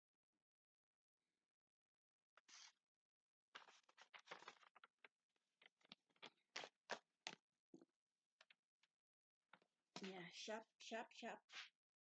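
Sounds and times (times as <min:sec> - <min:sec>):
paper rustling and crinkling: 0:03.5 - 0:07.4.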